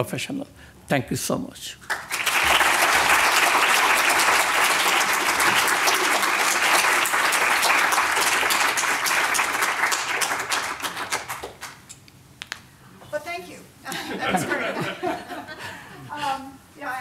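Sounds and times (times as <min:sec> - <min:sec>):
audience applauding: 0:01.9 - 0:11.8.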